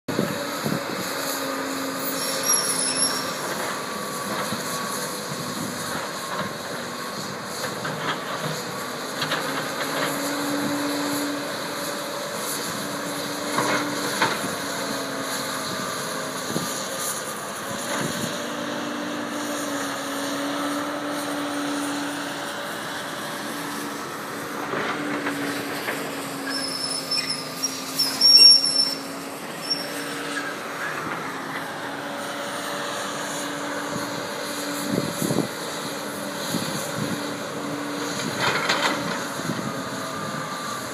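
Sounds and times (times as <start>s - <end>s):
excavator diesel engine droning: 0.1s - 40.9s
high squeal: 1.1s - 3.6s, 26.4s - 31.0s.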